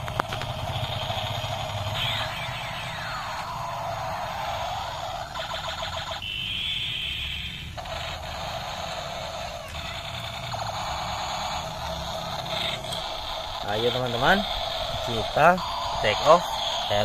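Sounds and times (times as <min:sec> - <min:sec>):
electronic alarm sound effects: 0:00.0 - 0:17.0
rapid electronic pulsing: 0:00.0 - 0:17.0
toy helicopter rotors spinning: 0:00.0 - 0:17.0
steady high tone: 0:00.1 - 0:17.0.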